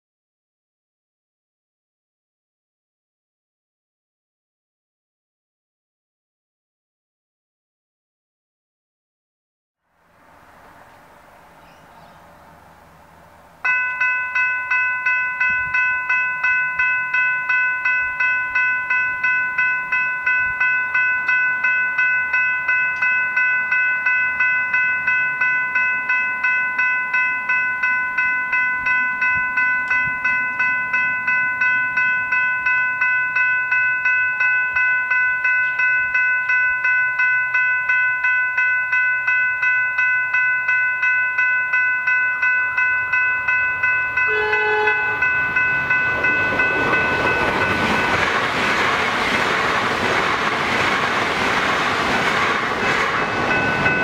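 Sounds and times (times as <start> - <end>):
arriving train noise: 9.8 - 54.0
level crossing bells ringing: 13.6 - 49.4, 52.8 - 54.0
train horn: 44.3 - 45.6.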